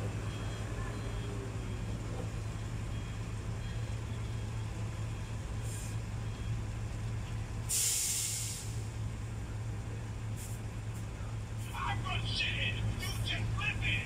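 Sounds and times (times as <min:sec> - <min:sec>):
truck diesel engine idling: 0:00.0 - 0:14.0
air hissing: 0:07.7 - 0:08.9.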